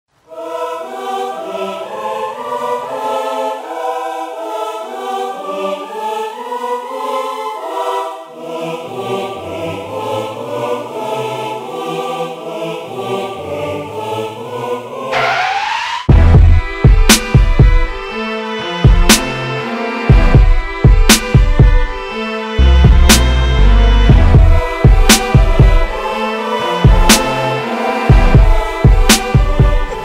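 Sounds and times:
deep bass part: 0:16.1 - 0:16.7, 0:22.6 - 0:24.7
sustained chords: 0:16.1 - 0:30.0.

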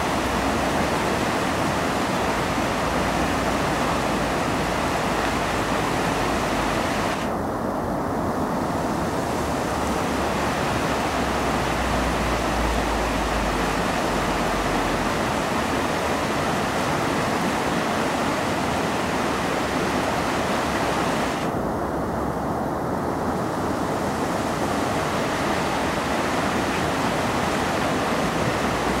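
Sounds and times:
river rushing through rapids: 0:00.0 - 0:29.0.

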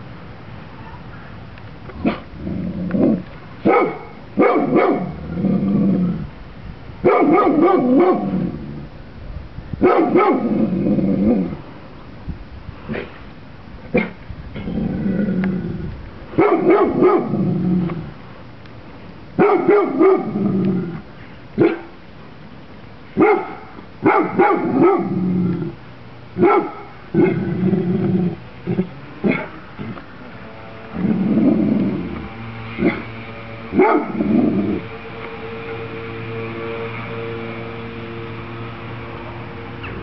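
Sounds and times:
dog growling: 0:02.0 - 0:03.3, 0:05.0 - 0:06.3, 0:10.4 - 0:11.6, 0:14.6 - 0:15.9, 0:27.1 - 0:30.0
large dog barking: 0:02.9 - 0:05.4, 0:07.0 - 0:08.6, 0:09.8 - 0:11.6, 0:16.3 - 0:17.9, 0:19.4 - 0:20.6, 0:21.6 - 0:22.0, 0:23.2 - 0:25.8, 0:26.4 - 0:27.4, 0:29.2 - 0:30.0, 0:32.8 - 0:33.1, 0:33.7 - 0:34.9.

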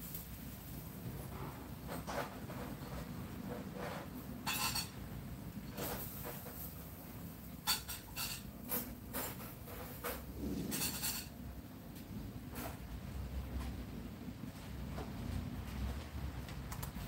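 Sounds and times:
rustling or scraping: 0:00.0 - 0:16.6
dishes clicking and knocking: 0:01.8 - 0:05.0, 0:07.6 - 0:11.4.

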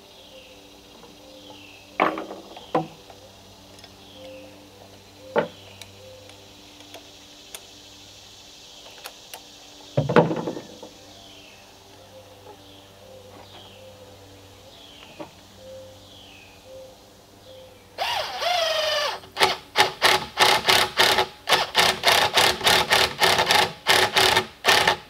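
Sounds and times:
birds chirping: 0:00.0 - 0:19.5.

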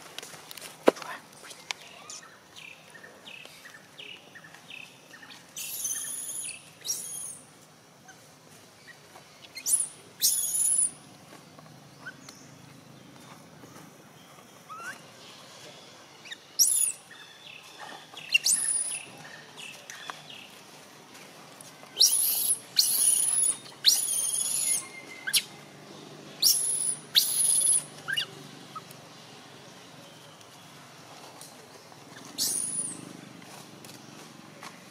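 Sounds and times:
baby monkey screaming: 0:22.0 - 0:25.5, 0:26.4 - 0:28.3, 0:32.4 - 0:33.0.

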